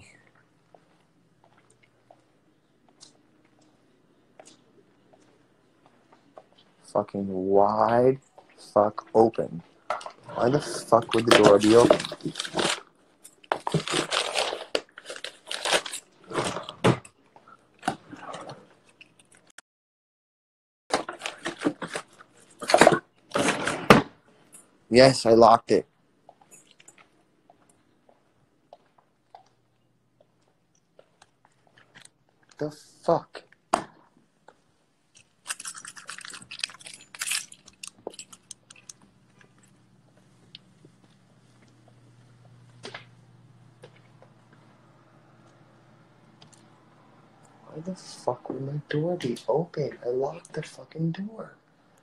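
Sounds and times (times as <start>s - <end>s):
phone handling crunching and rustling: 11.1s - 16.7s, 35.2s - 39.8s
faint low hum: 21.2s - 52.0s.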